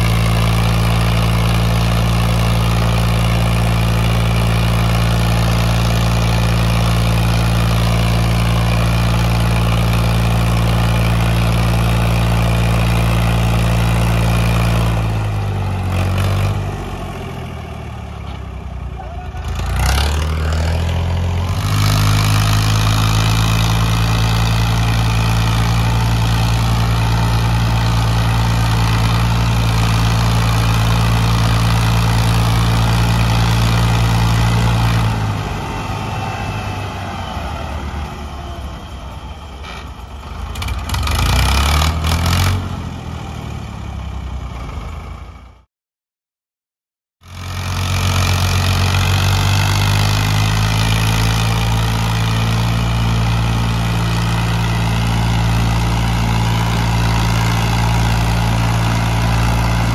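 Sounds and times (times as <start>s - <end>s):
tractor engines straining: 17.9s - 42.6s, 47.8s - 59.9s.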